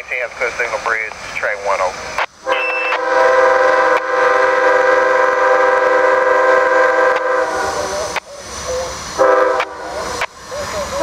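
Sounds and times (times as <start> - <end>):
locomotive air horn blast: 2.4 - 8.2, 8.8 - 10.3.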